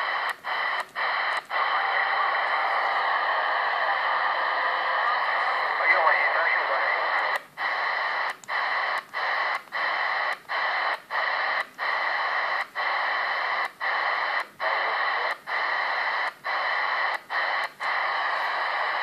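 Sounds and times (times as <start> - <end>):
radio static hiss: 0.0 - 19.0.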